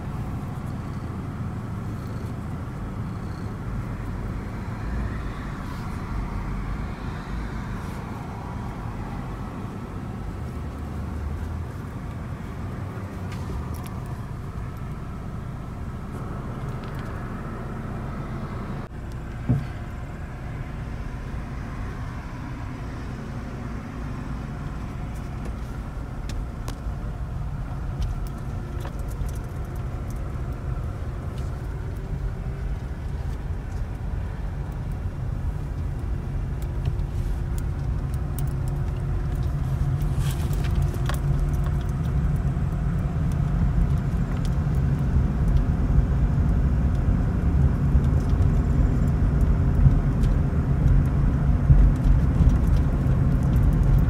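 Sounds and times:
car engine rumble: 0:00.0 - 0:54.0
road noise inside car: 0:00.0 - 0:54.0
brief thump: 0:19.4 - 0:19.8.

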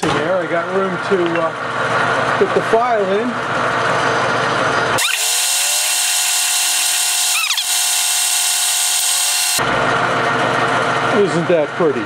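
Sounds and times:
lathe running: 0:00.6 - 0:11.4
short falling squeak: 0:07.3 - 0:07.7.

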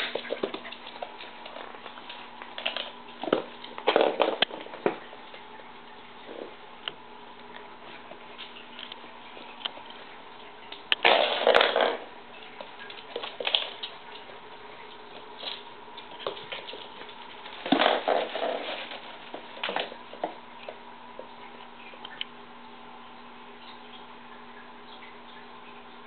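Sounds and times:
puppy scrabbling on hard floor: 0:00.0 - 0:05.4, 0:10.7 - 0:21.3
faint steady hum: 0:00.0 - 0:26.0.

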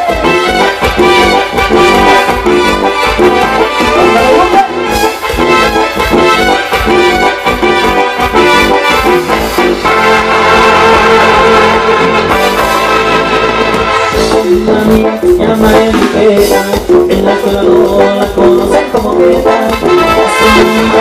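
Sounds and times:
live instrumental dance music: 0:00.0 - 0:21.0.

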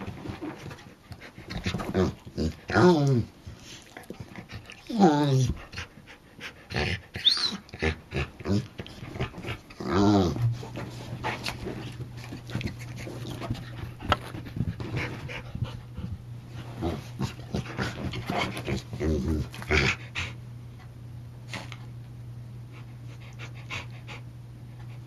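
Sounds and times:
dog panting and snuffling: 0:00.0 - 0:02.7, 0:03.4 - 0:09.8, 0:10.4 - 0:20.9, 0:22.7 - 0:25.0
steady low hum: 0:00.0 - 0:25.0
dog squeaking and moaning: 0:07.1 - 0:07.8.

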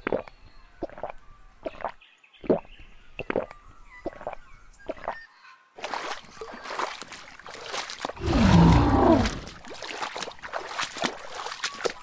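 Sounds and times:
water sloshing and splashing: 0:05.8 - 0:12.0
deep bellowing animal call: 0:08.2 - 0:09.5.

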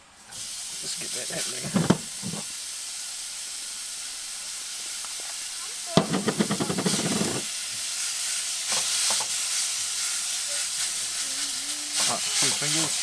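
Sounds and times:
meat sizzling in a frying pan: 0:00.3 - 0:13.0
fat crackling: 0:05.0 - 0:13.0.

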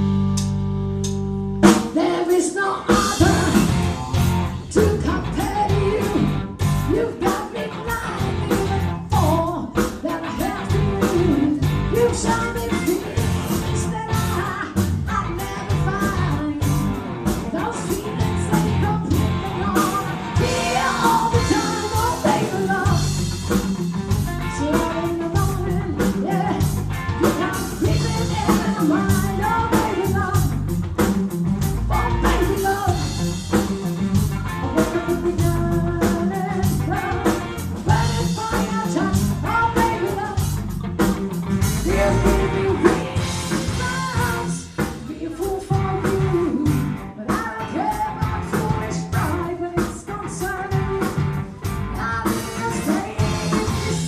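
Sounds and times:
bass guitar: 0:00.0 - 0:54.0
drums: 0:00.0 - 0:54.0
electric guitar: 0:00.0 - 0:54.0
woman singing: 0:01.8 - 0:03.8, 0:04.7 - 0:23.6, 0:24.2 - 0:31.1, 0:31.9 - 0:33.2, 0:34.6 - 0:40.6, 0:41.7 - 0:54.0.

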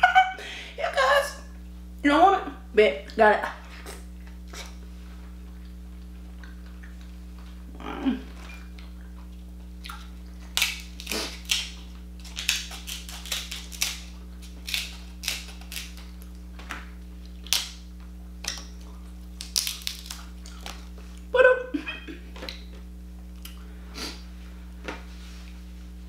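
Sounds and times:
crab shell cracking: 0:09.9 - 0:21.0.

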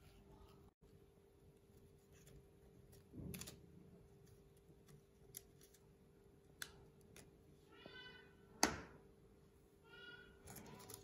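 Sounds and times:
high-pitched animal call: 0:09.8 - 0:10.9.

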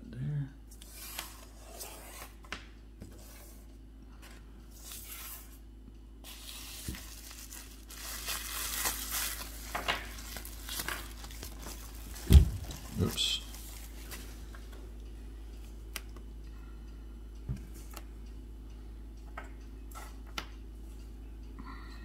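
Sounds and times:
packaging tearing and rustling: 0:06.3 - 0:14.2
dull thump: 0:12.2 - 0:12.7.

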